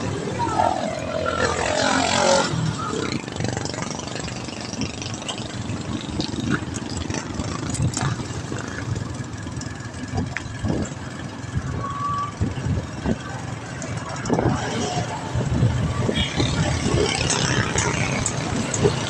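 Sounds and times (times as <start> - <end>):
vehicle engines running: 0.0 - 19.0
wind on microphone: 10.0 - 19.0.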